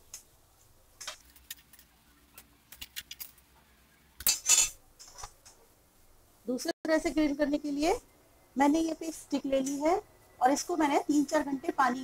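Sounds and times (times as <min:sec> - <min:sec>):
metal spatula scraping grill pan: 0:04.3 - 0:05.3.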